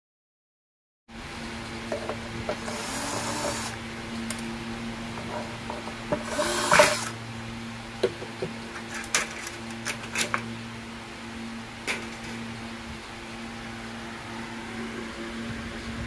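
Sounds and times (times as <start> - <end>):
steady low hum: 1.1 - 16.0
cordless drill running: 2.6 - 3.8, 6.2 - 7.2.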